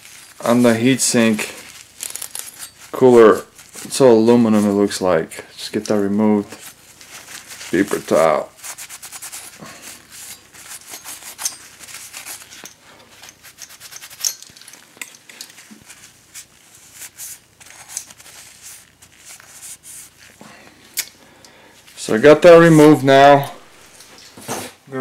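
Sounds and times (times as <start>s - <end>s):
paper towel scrubbing metal: 5.7s - 12.6s
small clicks and rustles: 8.9s - 20.4s.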